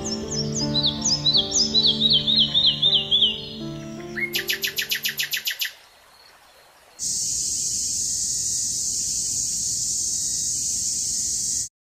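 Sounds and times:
bird trilling: 0:00.0 - 0:05.9
cicadas droning: 0:00.0 - 0:11.7.

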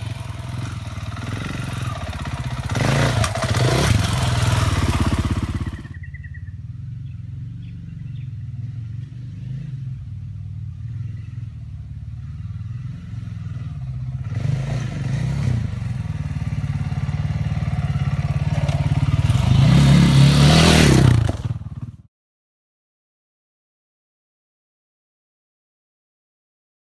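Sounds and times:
dirt bike engine: 0:00.0 - 0:22.1.

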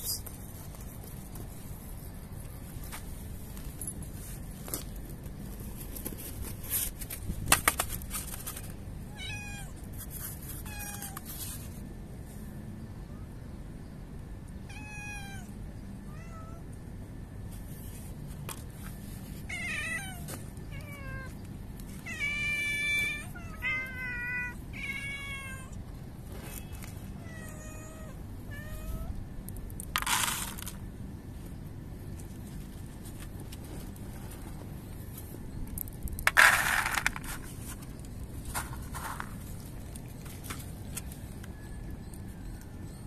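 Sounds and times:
cats meowing: 0:09.1 - 0:09.9, 0:14.7 - 0:16.7, 0:19.4 - 0:21.4, 0:22.0 - 0:25.8, 0:26.5 - 0:29.2.

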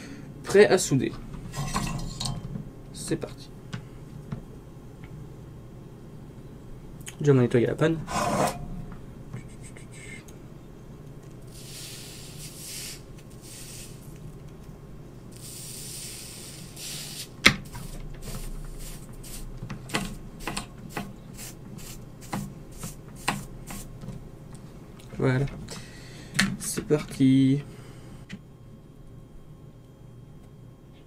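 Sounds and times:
soldering iron tip sizzling: 0:11.4 - 0:14.2, 0:15.3 - 0:24.0.

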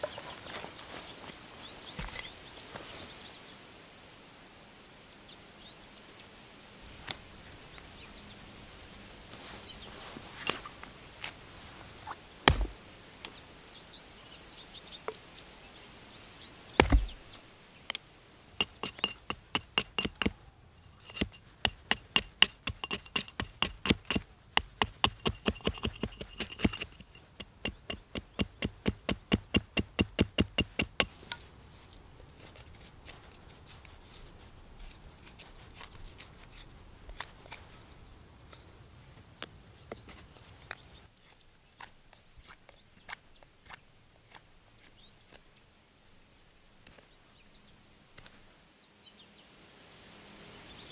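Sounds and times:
hatchet striking wood: 0:12.5 - 0:12.8, 0:16.8 - 0:17.2, 0:18.6 - 0:20.4, 0:21.0 - 0:31.2.

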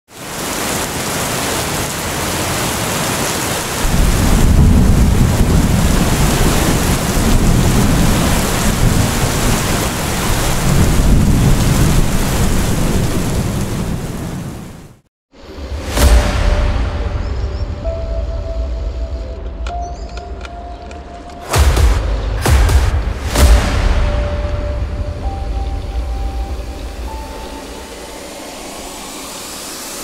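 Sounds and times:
heavy rain: 0:00.1 - 0:19.3, 0:21.2 - 0:30.0
rolling thunder: 0:03.8 - 0:14.7.

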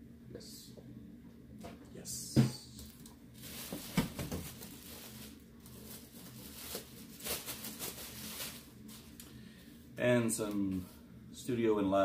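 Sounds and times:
plastic wrapping crinkling: 0:02.9 - 0:09.3.

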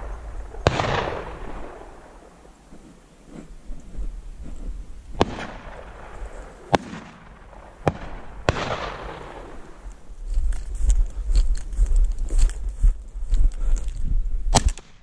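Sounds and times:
shotgun shots with echo: 0:00.0 - 0:02.3, 0:05.2 - 0:09.8.

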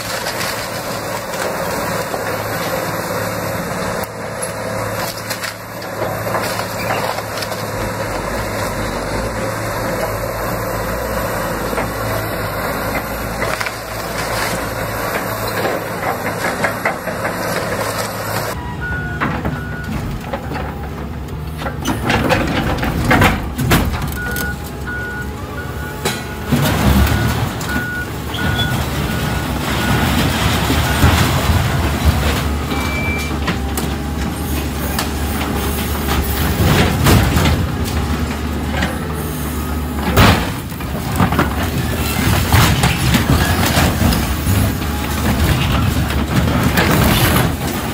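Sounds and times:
excavator engine running: 0:00.0 - 0:47.9
debris crashing down: 0:25.8 - 0:47.9.

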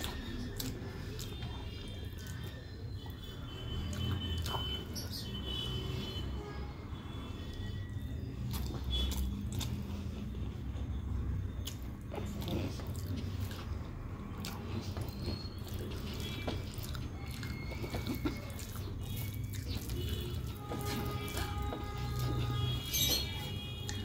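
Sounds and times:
person chewing: 0:00.0 - 0:06.3, 0:07.2 - 0:24.0.

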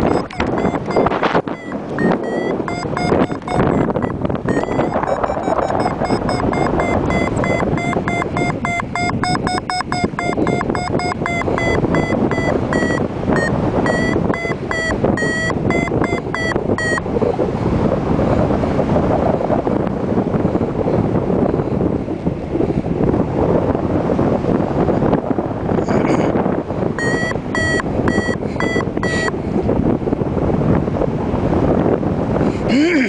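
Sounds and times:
variometer short beeps: 0:00.0 - 0:17.2, 0:27.0 - 0:29.4
wind rushing across microphone: 0:00.0 - 0:33.0.

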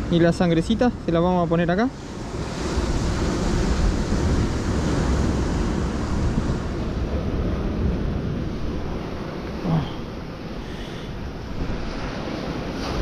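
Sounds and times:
sea surf rushing: 0:00.0 - 0:13.0
wind buffeting microphone: 0:00.0 - 0:13.0.

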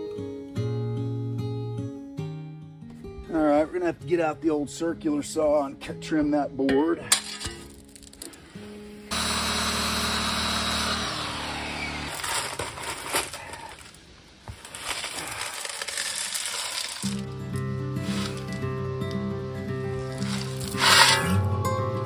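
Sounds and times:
circular saw cutting wood: 0:09.1 - 0:12.5, 0:20.2 - 0:21.5.

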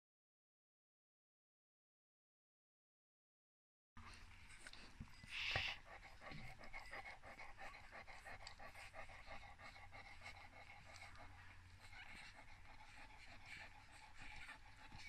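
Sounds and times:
puppies nursing: 0:04.0 - 0:15.0.

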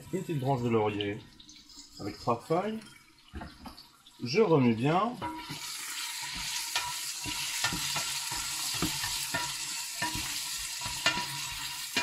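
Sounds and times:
vegetables sizzling in oil: 0:05.1 - 0:12.0
wooden spoon scraping a pot: 0:05.2 - 0:12.0.

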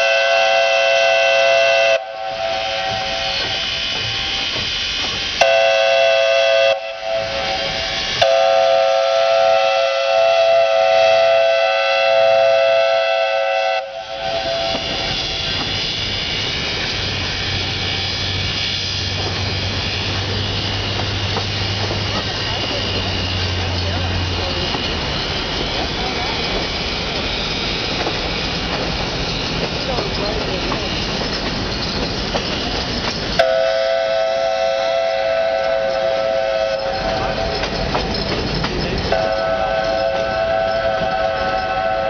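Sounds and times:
steam locomotive whistle blasts: 0:00.0 - 0:16.0, 0:33.4 - 0:37.8, 0:39.1 - 0:42.0
locomotive and train rumbling: 0:00.0 - 0:42.0
steam hiss: 0:00.0 - 0:42.0.

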